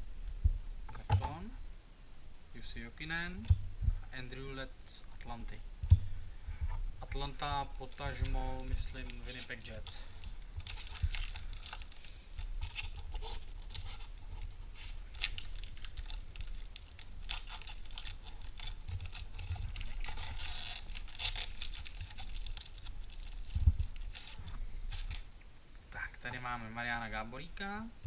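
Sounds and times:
foil pack crinkling: 0:07.2 - 0:25.2.

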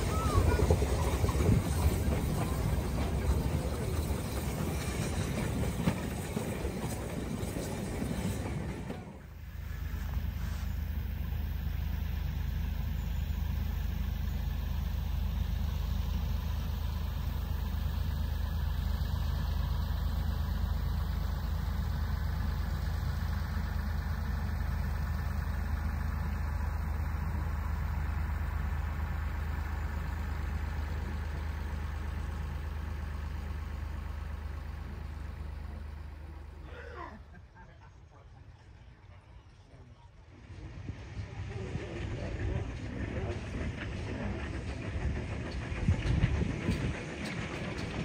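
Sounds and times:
locomotive engine humming: 0:00.0 - 0:48.0.

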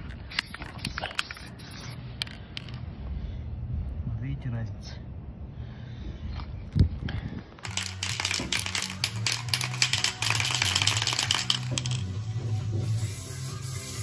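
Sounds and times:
spray can rattling: 0:00.4 - 0:01.9, 0:07.6 - 0:12.1.

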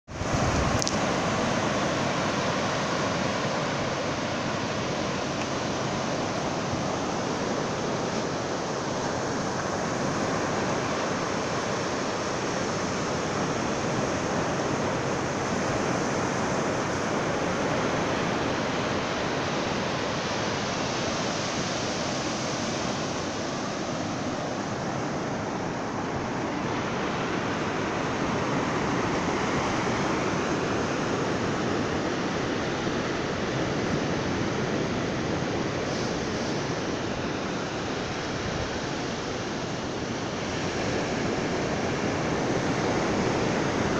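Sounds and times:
ocean waves breaking on beach: 0:00.1 - 0:43.9.

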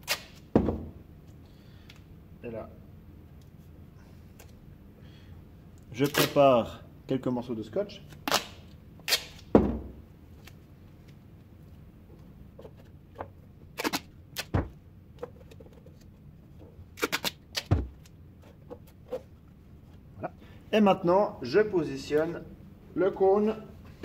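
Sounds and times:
tape crackling and tearing: 0:00.0 - 0:00.4, 0:06.0 - 0:06.4, 0:08.1 - 0:09.5, 0:13.7 - 0:14.5, 0:16.9 - 0:18.1.

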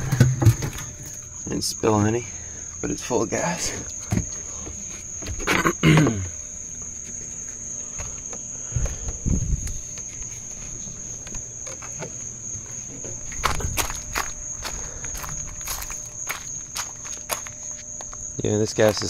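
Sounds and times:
crickets chirring: 0:00.0 - 0:19.0
footsteps on gravel: 0:12.8 - 0:19.0.

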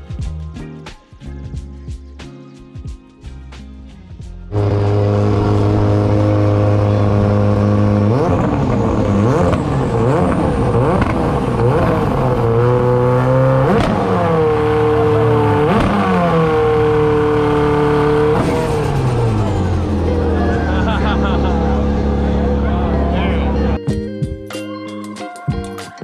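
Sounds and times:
car engine idling and revving: 0:03.8 - 0:23.8.

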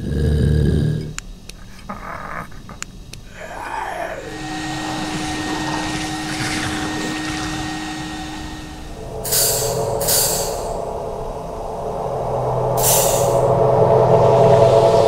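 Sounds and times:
machine-like whirring drone: 0:00.0 - 0:15.0
burst of hiss: 0:03.3 - 0:10.8, 0:12.8 - 0:13.5.

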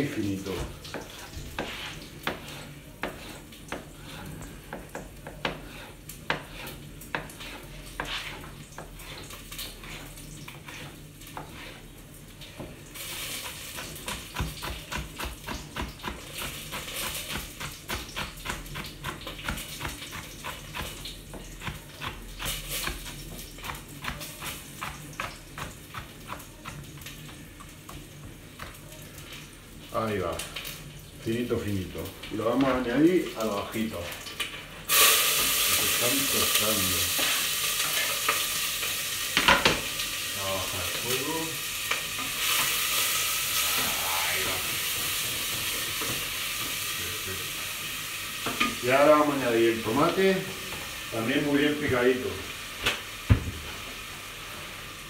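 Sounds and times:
oil sizzling: 0:00.0 - 0:55.0
knife chopping on cutting board: 0:00.6 - 0:09.2.

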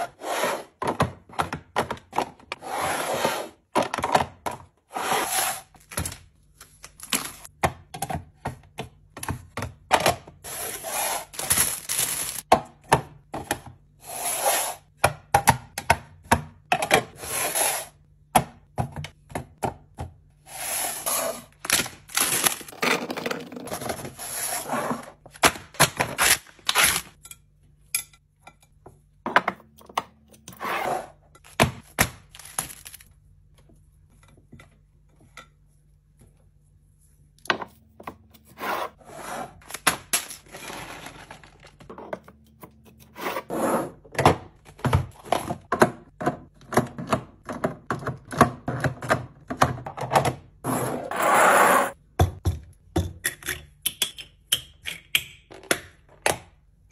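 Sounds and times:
plastic packaging crinkling: 0:11.4 - 0:12.4.

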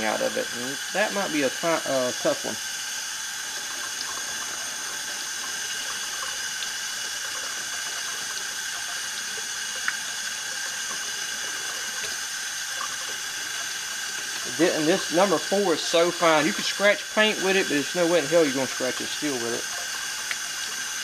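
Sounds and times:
faucet running into steel sink: 0:00.0 - 0:21.0.

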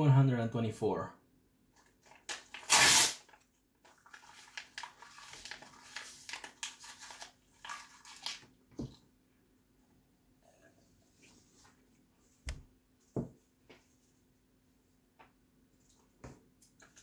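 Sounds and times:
paper tearing: 0:02.2 - 0:03.4
paper crinkling and chewing: 0:03.3 - 0:08.5.

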